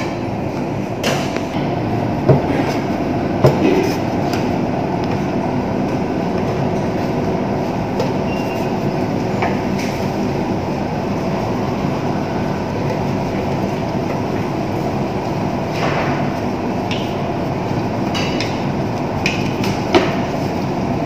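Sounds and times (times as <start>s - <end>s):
loud mechanical rumble: 0.0s - 21.0s.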